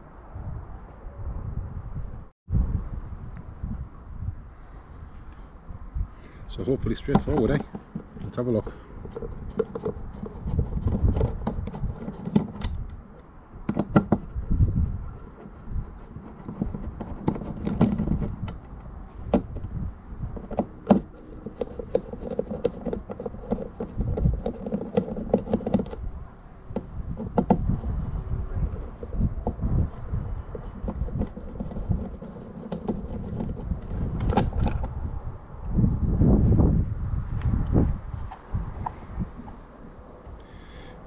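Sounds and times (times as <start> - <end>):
low handling rumble: 12.7 - 41.0.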